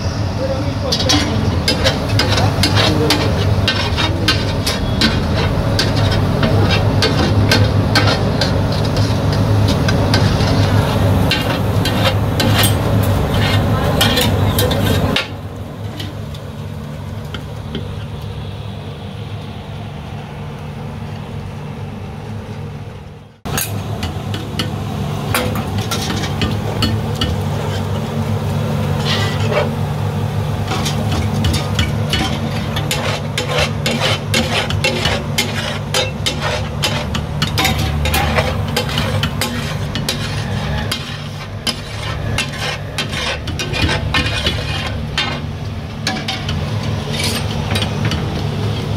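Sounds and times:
food sizzling: 0.0s - 21.8s, 23.4s - 48.9s
metal spatula scraping on griddle: 0.8s - 16.4s, 25.3s - 48.9s.

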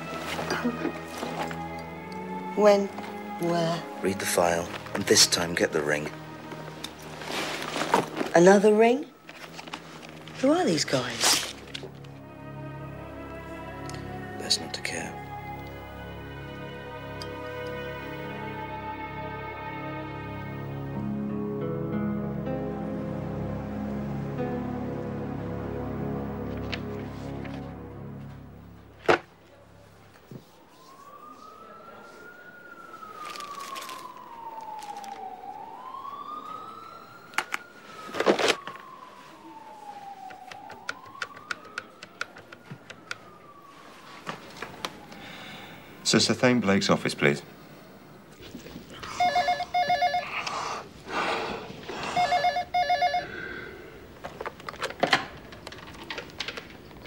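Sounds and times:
siren wailing: 0.0s - 46.2s, 47.8s - 51.0s, 51.7s - 54.6s
telephone ringing: 49.1s - 50.4s, 52.1s - 53.7s.

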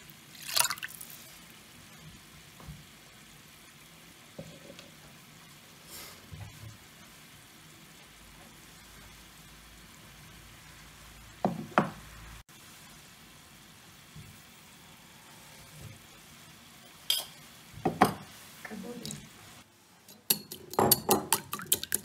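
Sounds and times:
salt being poured: 0.0s - 1.6s, 20.7s - 22.0s
broth simmering in pot: 0.0s - 22.0s.

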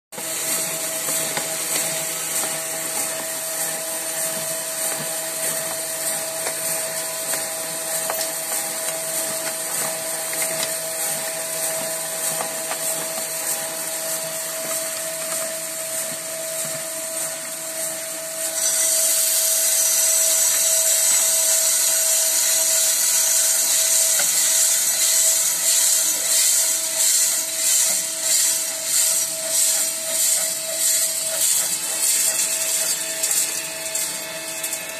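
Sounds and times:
roaster motor hum: 0.1s - 34.9s
beans pouring with rushing hiss: 0.2s - 34.9s
coffee beans tumbling in drum: 0.2s - 34.9s
beans swishing in tray: 22.4s - 33.8s.

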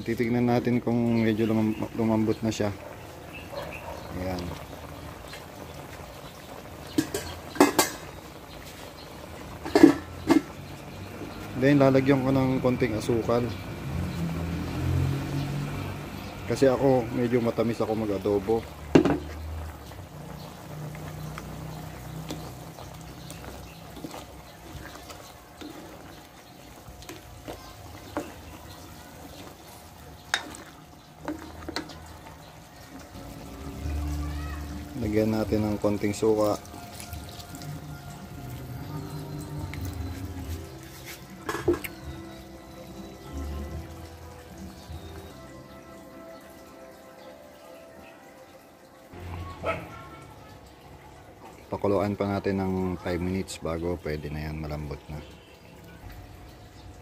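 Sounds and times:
metal utensil clinking on pot: 6.9s - 8.2s, 9.6s - 10.5s, 30.3s - 32.0s.

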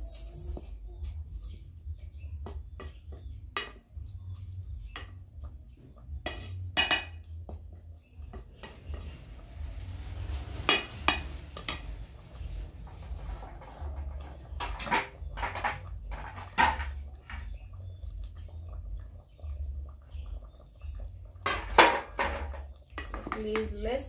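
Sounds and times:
wooden spatula scraping a saucepan: 5.7s - 7.6s, 8.4s - 17.6s.

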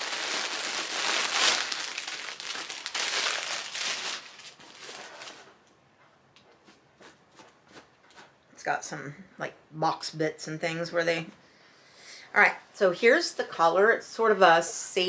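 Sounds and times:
packaging crinkling and rustling: 0.0s - 5.6s.

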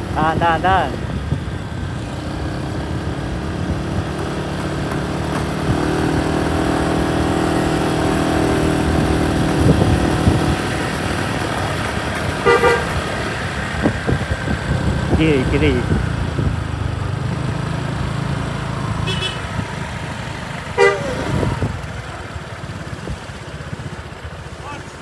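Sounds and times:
vehicle engines running: 0.0s - 25.0s
multi-tone bus horn: 12.3s - 13.3s, 19.0s - 19.6s, 20.7s - 21.8s.

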